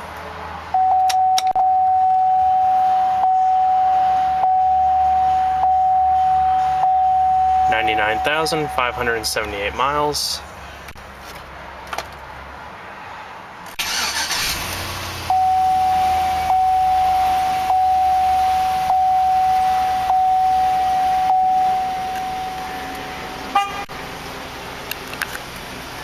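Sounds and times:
dashboard warning chime: 0:00.7 - 0:10.0, 0:15.3 - 0:23.8
engine cranking and idling: 0:13.7 - 0:15.5.

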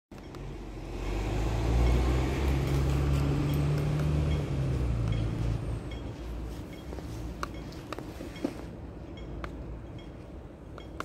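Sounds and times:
vehicle engine passing: 0:00.4 - 0:06.5.

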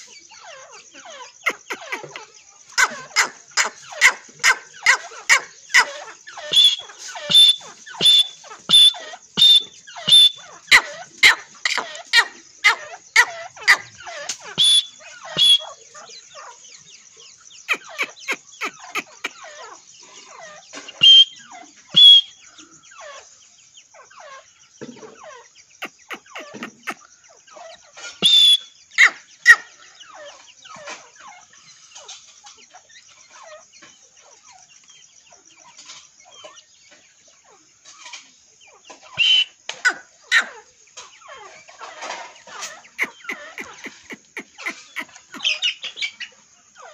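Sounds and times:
hen clucking: 0:00.0 - 0:16.6, 0:17.6 - 0:22.3, 0:25.8 - 0:31.5, 0:38.9 - 0:46.9
chicks peeping: 0:00.0 - 0:46.9.

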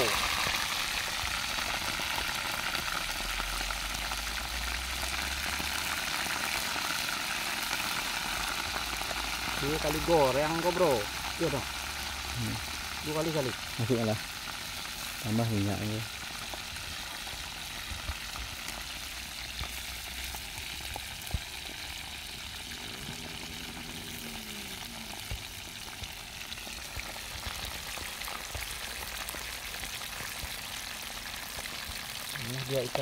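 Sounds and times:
fish sizzling in hot oil: 0:00.0 - 0:33.0.

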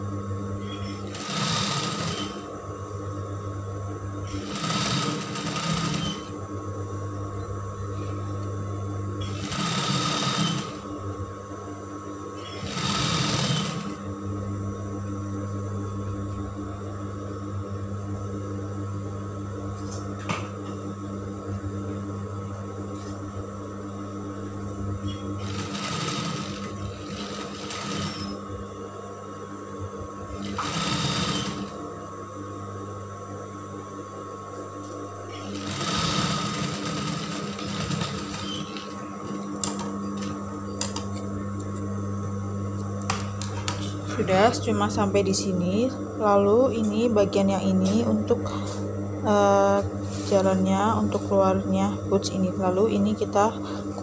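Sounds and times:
steady low hum: 0:00.0 - 0:54.0
sewing machine stitching: 0:00.9 - 0:02.4, 0:04.3 - 0:06.3, 0:09.2 - 0:10.8, 0:12.4 - 0:14.0, 0:25.4 - 0:28.3, 0:30.4 - 0:31.8, 0:35.4 - 0:38.8.

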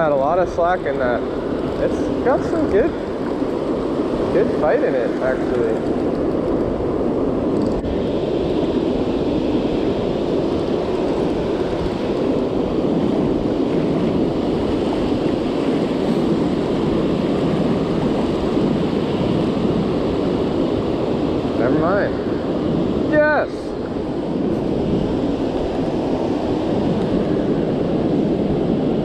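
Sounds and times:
surf breaking on beach: 0:00.0 - 0:29.0
wind buffeting microphone: 0:00.0 - 0:29.0.

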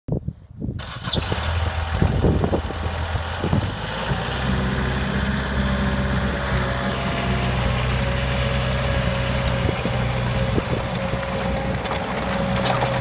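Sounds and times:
high squeal: 0:00.8 - 0:03.8
diesel mower engine running: 0:00.8 - 0:13.0.

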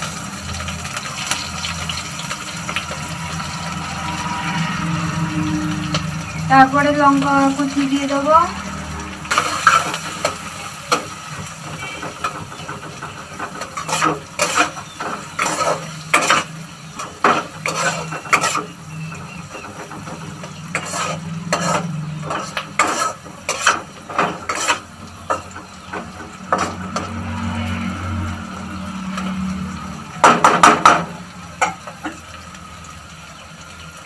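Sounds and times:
onions sizzling in oil: 0:00.0 - 0:34.0
spatula scraping a wok: 0:07.5 - 0:28.2.

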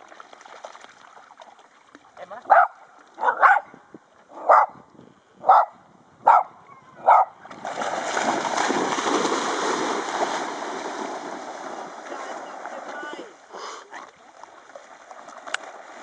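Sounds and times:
dogs splashing through water: 0:00.0 - 0:03.3, 0:07.4 - 0:16.0
dog barking: 0:02.5 - 0:03.7, 0:04.4 - 0:04.8, 0:05.4 - 0:07.4.

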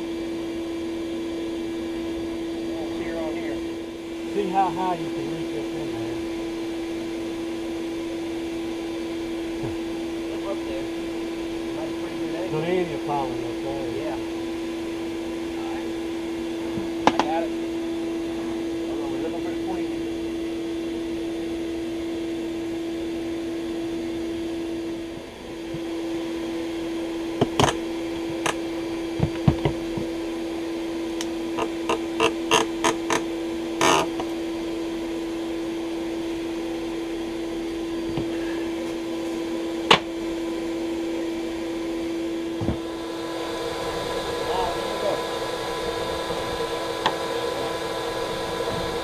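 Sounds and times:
steady hum: 0:00.0 - 0:49.0.

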